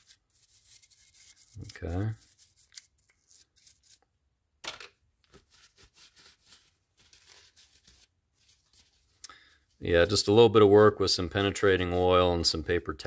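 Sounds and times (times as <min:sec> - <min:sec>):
scrubbing and wiping metal: 0:00.0 - 0:04.0, 0:05.4 - 0:10.6.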